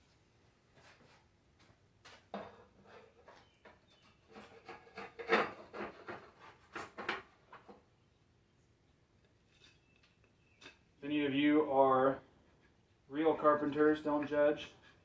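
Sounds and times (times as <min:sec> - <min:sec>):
wooden strips clattering and scraping: 0:02.1 - 0:07.8.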